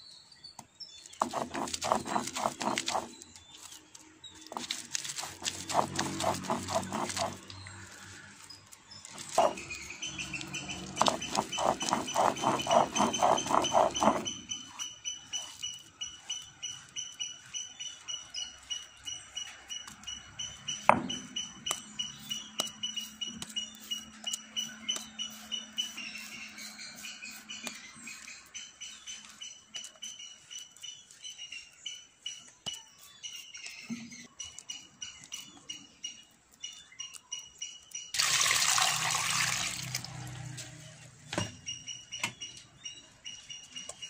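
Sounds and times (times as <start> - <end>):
fingers scraping paste on stone: 1.0 - 17.6, 20.8 - 31.1
stone roller grinding lentils: 1.1 - 31.4.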